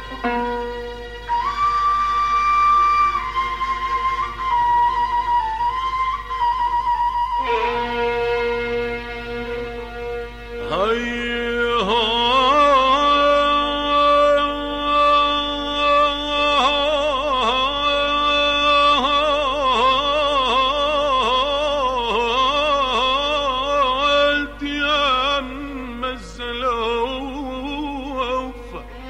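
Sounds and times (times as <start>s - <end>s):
person singing with vibrato: 10.6s - 29.0s.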